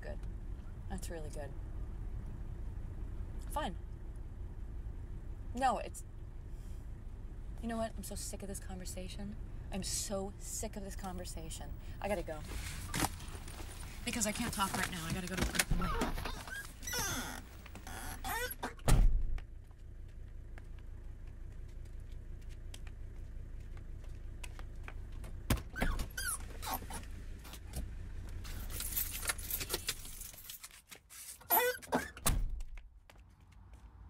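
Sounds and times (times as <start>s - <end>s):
low steady rumble: 0.0s - 30.6s
keys jangling: 28.5s - 30.7s.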